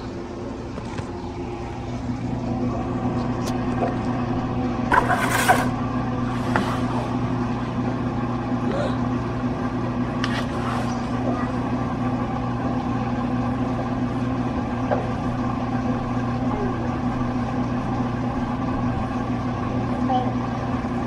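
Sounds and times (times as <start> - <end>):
appliance humming: 0.0 - 21.0.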